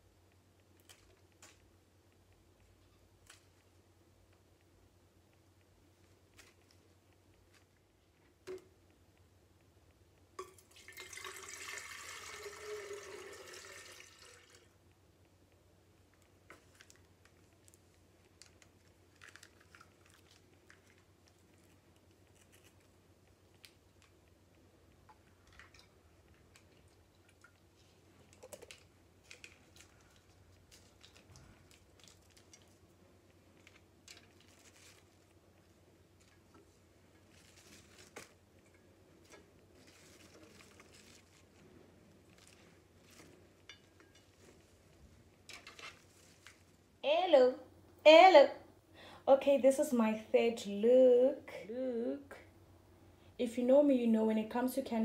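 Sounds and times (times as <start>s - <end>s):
small clicks and rustles of handling: 0.2s - 10.4s, 14.8s - 47.0s
water pouring into glass: 10.4s - 14.7s.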